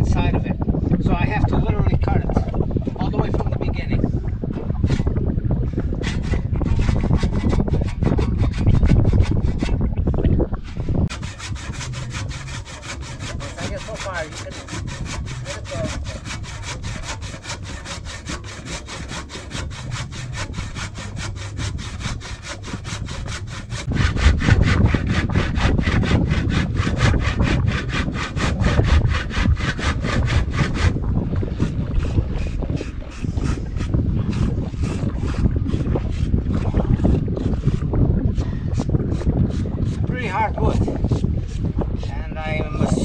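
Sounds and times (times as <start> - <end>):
hand saw cutting wood: 5.9 - 9.8, 11.0 - 31.0, 31.6 - 37.9, 38.8 - 42.1.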